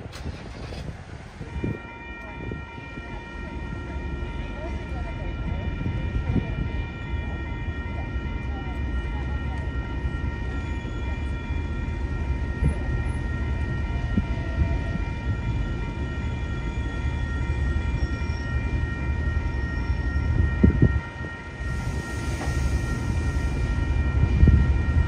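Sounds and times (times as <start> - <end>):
diesel locomotive engine rumble: 0.0 - 25.0.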